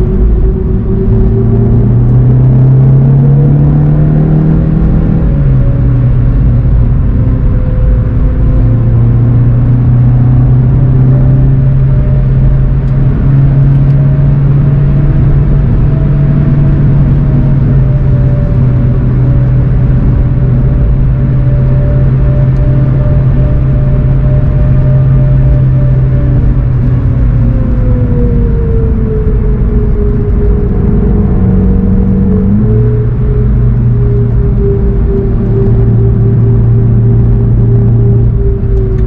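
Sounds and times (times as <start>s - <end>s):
car engine accelerating: 0.0s - 39.0s.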